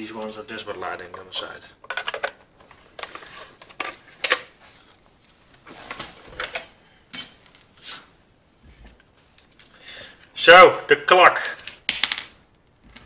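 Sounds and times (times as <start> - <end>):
plastic housing clicking and clattering: 0.7 - 4.5.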